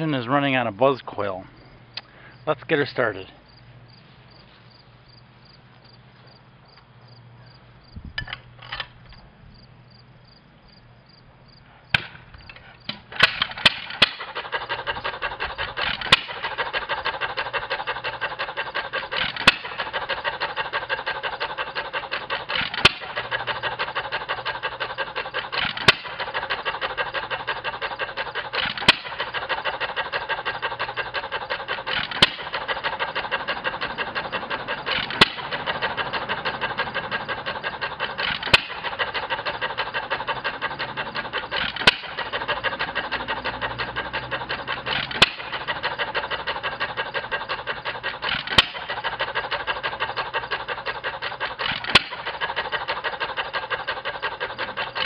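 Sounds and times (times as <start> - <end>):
engine clatter: 11.9 - 55.0.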